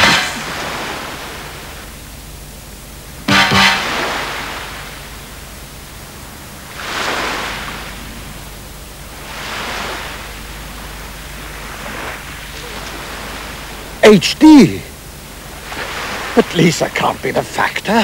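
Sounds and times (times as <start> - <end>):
short loud pitched sound: 0.0 - 0.6, 3.3 - 4.6
faint low hum: 0.0 - 18.0
wind and sea noise: 0.0 - 18.0.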